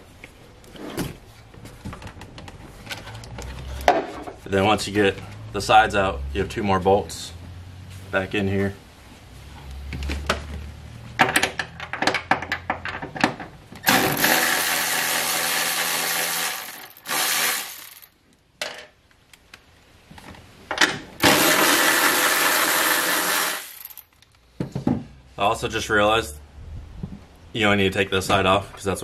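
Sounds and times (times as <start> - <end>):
power tool whirring: 13.8 - 18.1, 21.2 - 24.0.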